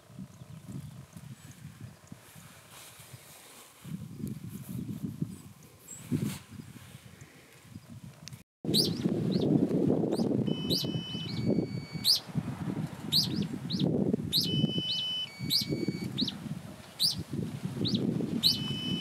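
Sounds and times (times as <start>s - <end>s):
low rustling noise: 0.6s - 8.2s
birds chirping and whistling: 8.7s - 12.3s, 13.0s - 19.0s.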